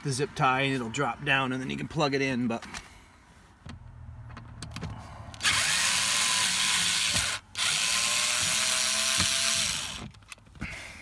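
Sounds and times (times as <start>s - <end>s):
cordless driver spinning screws: 5.4s - 10.3s.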